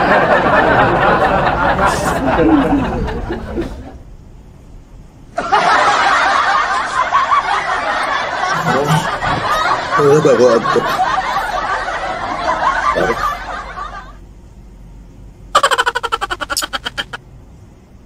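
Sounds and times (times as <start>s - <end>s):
snickering laughter: 5.4s - 14.2s, 15.6s - 17.2s.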